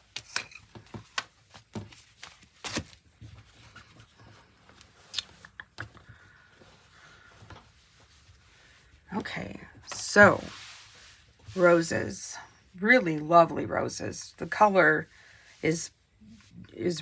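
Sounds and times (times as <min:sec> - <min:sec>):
fabric rustling: 0:06.2 - 0:12.2.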